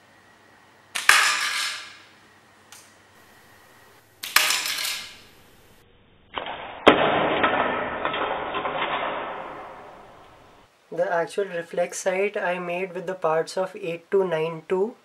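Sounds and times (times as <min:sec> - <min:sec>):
projectile skidding across tile floor: 0:04.2 - 0:10.7.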